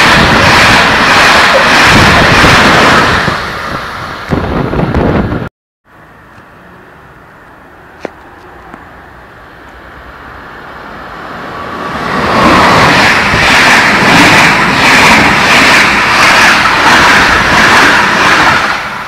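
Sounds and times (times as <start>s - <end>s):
train wheels beating: 0.0s - 5.2s, 11.5s - 19.0s
train passing at speed: 0.0s - 19.0s.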